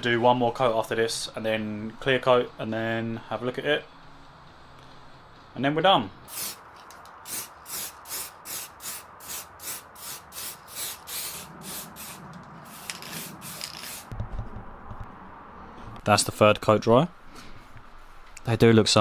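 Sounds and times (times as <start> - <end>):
spray can hissing bursts: 6.3 - 14.1
low bumps: 11.4 - 16.1.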